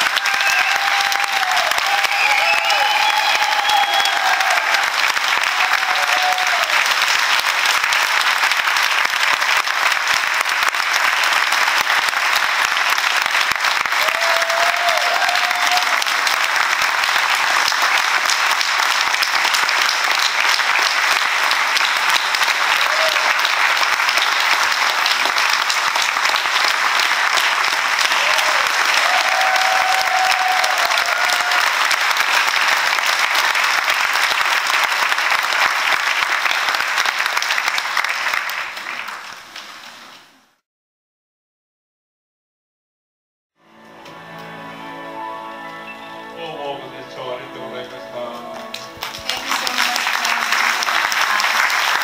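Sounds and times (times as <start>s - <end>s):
crowd calls: 0.0s - 7.0s
audience applauding: 0.0s - 40.4s, 48.1s - 52.0s.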